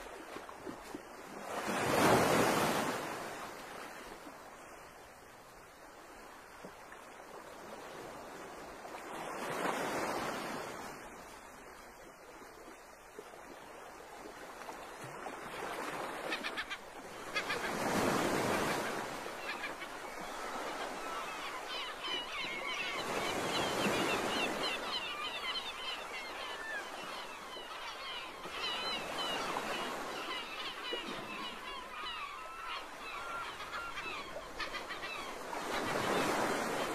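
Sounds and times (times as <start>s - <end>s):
birds calling: 16.2s - 36.9s.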